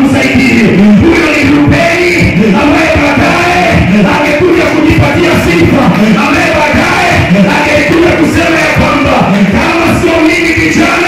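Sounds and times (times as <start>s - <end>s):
backing music: 0.0s - 11.0s
man singing gospel song: 0.0s - 11.0s.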